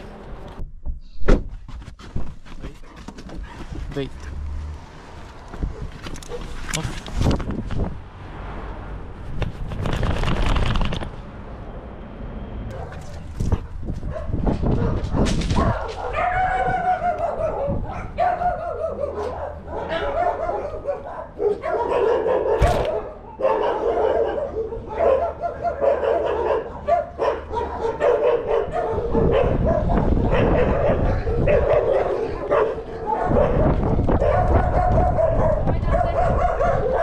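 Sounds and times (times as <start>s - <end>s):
dogs barking and yelping: 5.6s - 6.6s, 12.7s - 37.0s.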